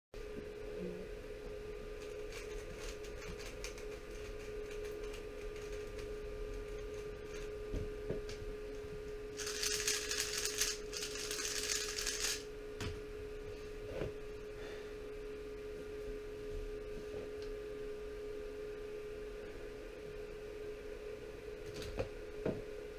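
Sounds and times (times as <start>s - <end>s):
steady electrical hum: 0.2s - 22.9s
puzzle cube plastic clicks rattling: 9.4s - 12.4s.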